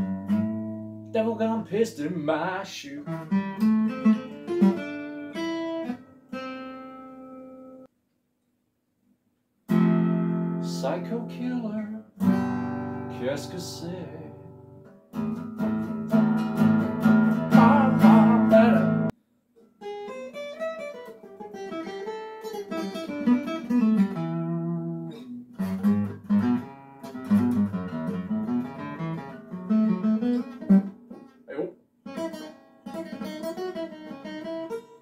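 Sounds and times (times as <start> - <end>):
acoustic guitar strumming chords: 0.0 - 7.9, 9.7 - 19.1, 19.8 - 35.0
guitar picked notes: 0.0 - 7.9, 9.7 - 19.1, 19.8 - 35.0
person singing: 10.7 - 12.0, 13.1 - 14.4, 17.5 - 19.1.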